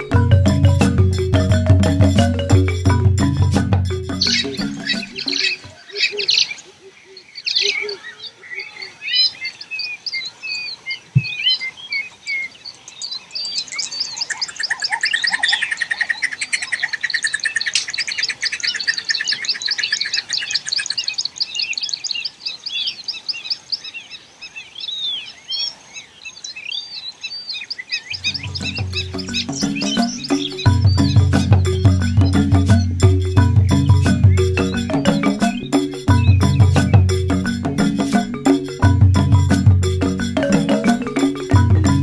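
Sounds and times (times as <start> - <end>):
birds chirping and whistling: 0.0 - 6.6, 9.1 - 22.1, 27.6 - 42.0
fast dense bird trill: 0.0 - 6.6, 13.0 - 22.0, 27.8 - 42.0.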